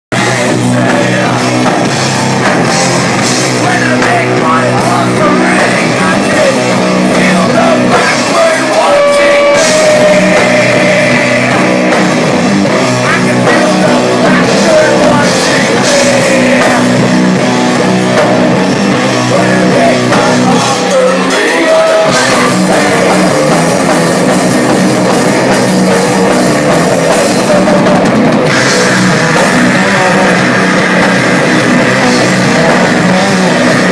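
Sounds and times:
drum kit with cymbals: 0:00.1 - 0:33.9
electric guitars: 0:00.1 - 0:33.9
person singing into microphone: 0:03.5 - 0:12.0, 0:13.0 - 0:17.2, 0:19.2 - 0:23.4.

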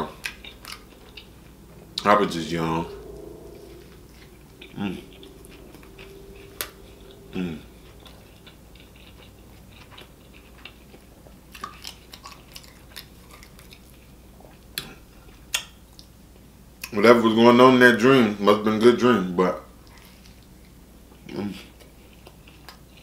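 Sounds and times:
closed-mouth humming: 0:00.0 - 0:10.5.

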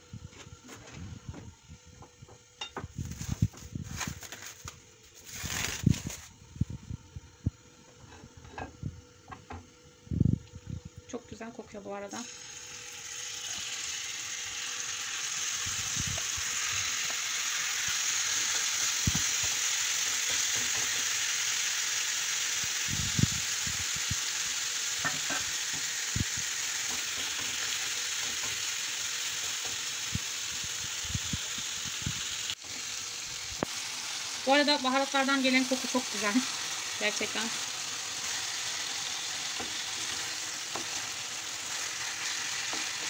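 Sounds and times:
chicken sizzling in hot oil: 0:02.6 - 0:06.5, 0:12.1 - 0:43.0.

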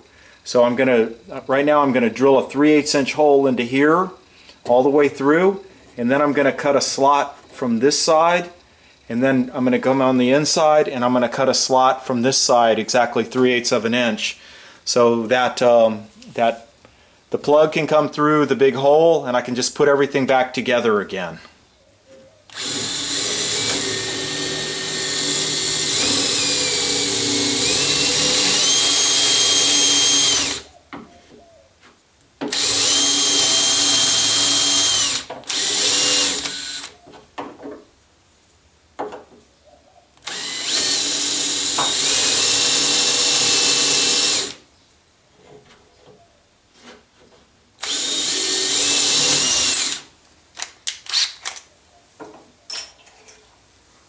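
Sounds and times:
cordless drill boring wood: 0:22.5 - 0:30.7, 0:32.5 - 0:37.0, 0:40.2 - 0:44.6, 0:47.8 - 0:50.1, 0:51.1 - 0:51.4.

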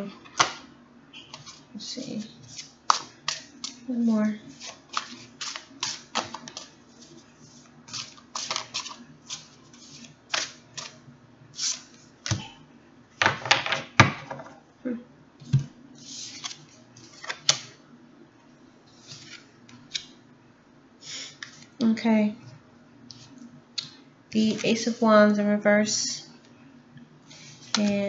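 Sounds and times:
cards being shuffled: 0:04.5 - 0:07.2, 0:07.9 - 0:11.0.

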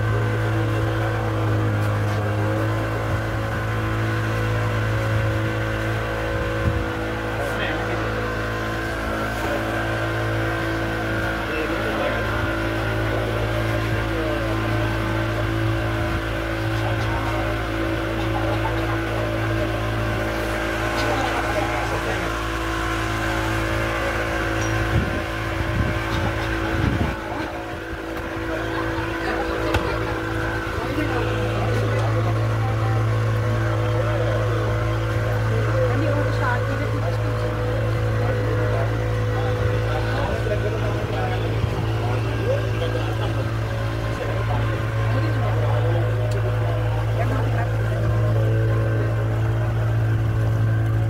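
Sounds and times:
boat engine droning: 0:00.0 - 0:51.0
wind buffeting microphone: 0:24.8 - 0:28.4.

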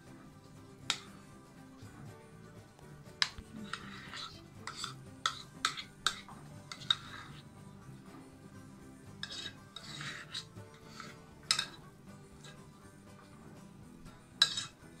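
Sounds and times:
quiet background music: 0:00.0 - 0:15.0
spoon scraping porcelain bowl: 0:00.8 - 0:01.2, 0:03.1 - 0:08.4, 0:09.0 - 0:13.3, 0:14.3 - 0:15.0
spoon clinking on bowl: 0:03.2 - 0:07.3, 0:11.0 - 0:11.8, 0:14.4 - 0:14.8.

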